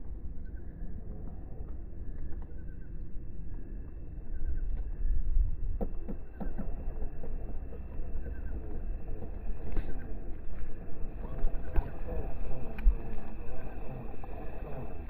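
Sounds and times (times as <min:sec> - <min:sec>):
toy car electric motor: 0:06.8 - 0:15.0.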